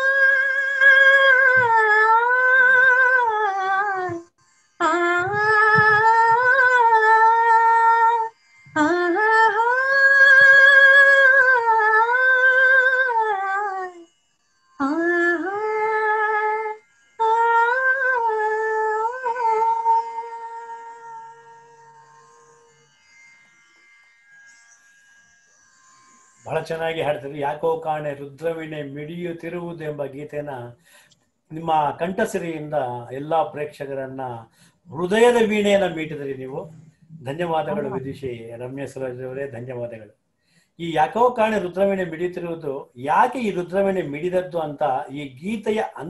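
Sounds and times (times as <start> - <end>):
woman singing unaccompanied: 0.0 - 14.0, 14.8 - 21.3.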